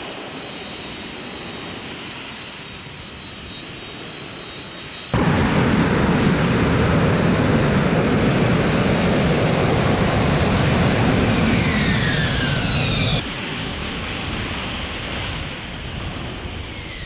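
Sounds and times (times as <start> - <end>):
jet engine roaring: 0.0 - 17.0
engine whine falling in pitch: 4.6 - 13.2.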